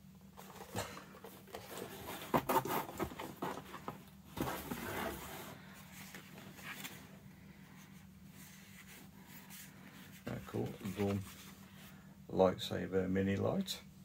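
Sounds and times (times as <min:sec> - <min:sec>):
packaging rustling and crinkling: 0:10.2 - 0:11.5.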